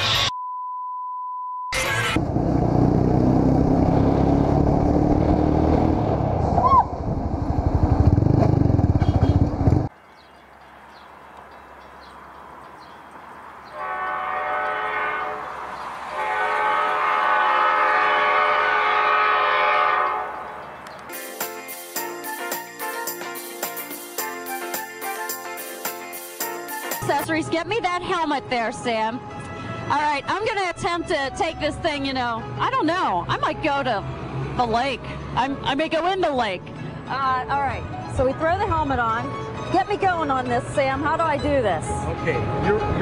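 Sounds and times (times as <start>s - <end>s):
short steady beep: 0.3s - 1.8s
loud rumbling rush: 2.2s - 9.9s
locomotive air horn: 13.7s - 20.6s.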